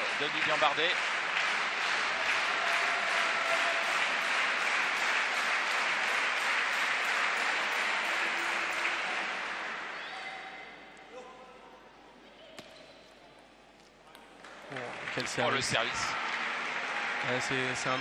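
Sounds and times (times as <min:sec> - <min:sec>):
spectators applauding: 0:00.0 - 0:10.2, 0:14.4 - 0:18.0.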